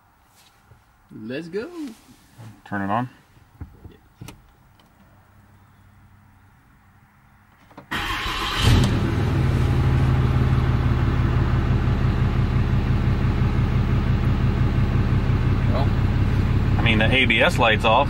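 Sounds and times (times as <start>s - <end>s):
diesel engine cranking: 7.6s - 18.0s
diesel engine idling: 7.9s - 18.0s.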